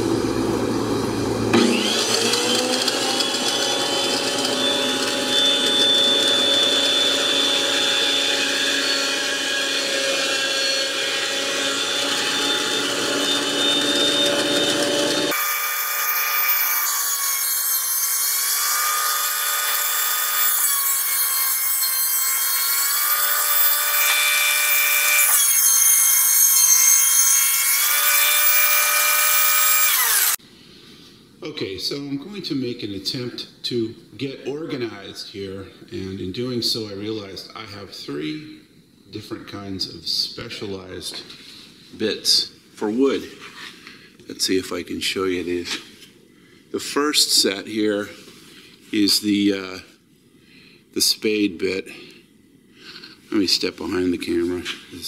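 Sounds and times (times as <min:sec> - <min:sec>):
thickness planer cutting wood: 0:01.2 - 0:30.4.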